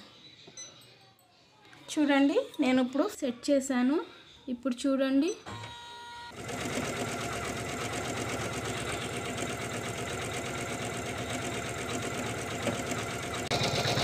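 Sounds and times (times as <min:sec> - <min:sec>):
embroidery machine stitching: 0:06.3 - 0:14.0.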